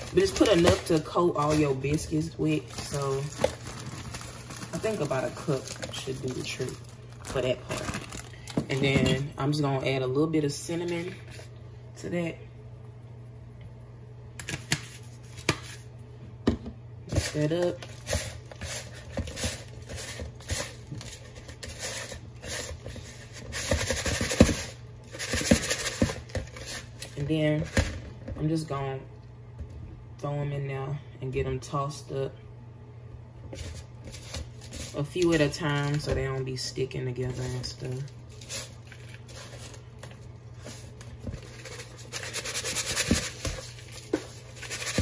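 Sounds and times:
dough rustling in sugar: 0:00.0 - 0:09.1, 0:37.2 - 0:45.0
sugar scratching in plastic bowl: 0:40.6 - 0:45.0.

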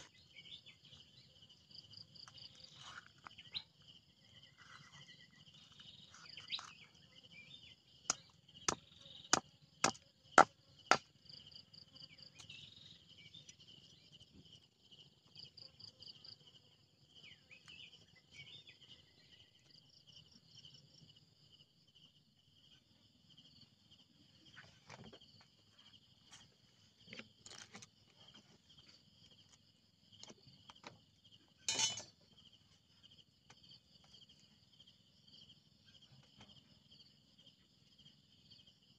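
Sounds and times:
insects chirring: 0:00.0 - 0:38.9
cleaver chopping on a block: 0:08.1 - 0:11.1.

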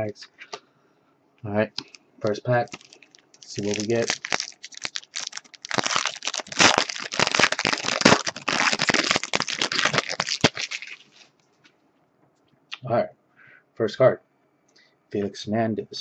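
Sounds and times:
foil wrapper crinkling: 0:02.6 - 0:11.4.

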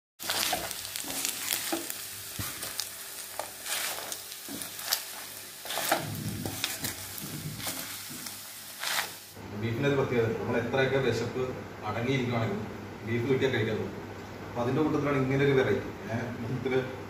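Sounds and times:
spatula scraping a pan: 0:00.2 - 0:09.3
food sizzling in a pan: 0:00.2 - 0:09.4.

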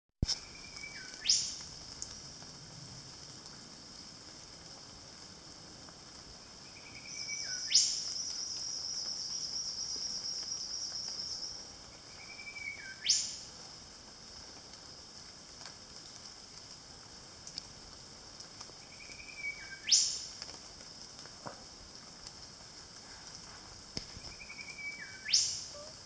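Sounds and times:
bird whistling whip-crack call: 0:19.3 - 0:20.2, 0:24.2 - 0:25.9.

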